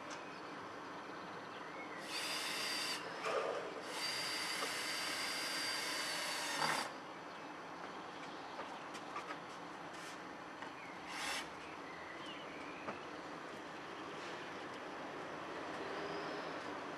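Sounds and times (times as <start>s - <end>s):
power drill whining: 2.0s - 6.9s.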